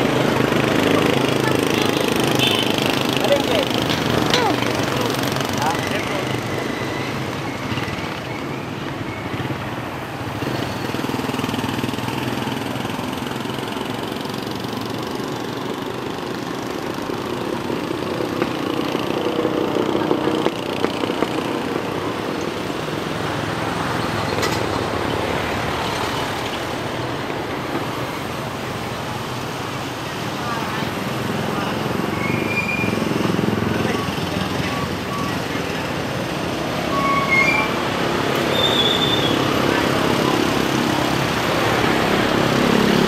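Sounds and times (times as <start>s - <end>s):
roadside traffic passing: 0.0s - 43.0s.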